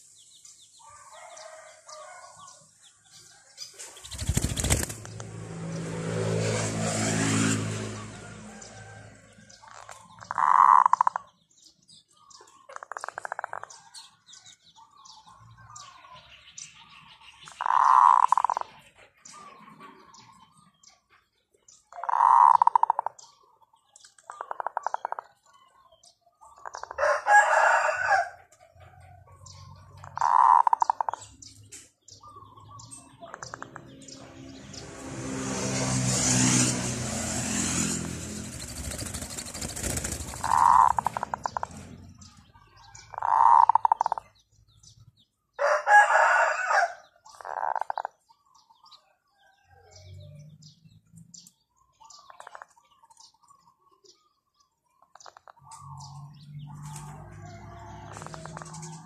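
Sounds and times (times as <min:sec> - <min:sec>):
roosters crowing: 0:00.8 - 0:05.0, 0:06.4 - 0:11.2, 0:22.0 - 0:23.1, 0:26.6 - 0:31.2, 0:33.4 - 0:44.2, 0:45.6 - 0:48.2, 0:55.7 - 0:59.0
engine passing: 0:03.8 - 0:11.3, 0:32.5 - 0:44.3, 0:55.6 - 0:59.0.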